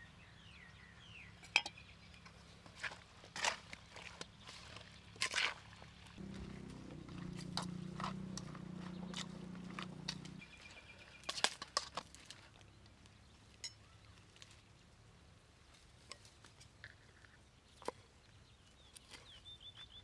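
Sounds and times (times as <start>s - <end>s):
clinks against metal bowl: 1.4s - 1.8s
hand mixing chicken in marinade: 2.6s - 12.8s.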